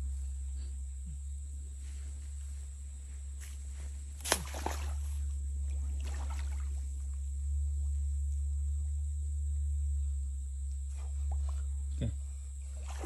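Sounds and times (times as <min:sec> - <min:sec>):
steady low rumble: 0:00.0 - 0:13.0
water splashing and sloshing: 0:03.4 - 0:07.3, 0:12.6 - 0:13.0
sharp splash: 0:04.2 - 0:05.2, 0:05.8 - 0:07.0, 0:12.8 - 0:13.0.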